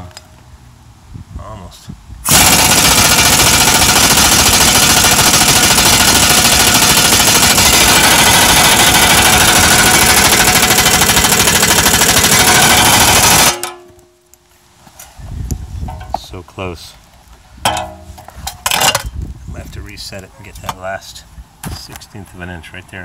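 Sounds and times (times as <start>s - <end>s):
pneumatic impact wrench hammering: 2.3s - 13.9s.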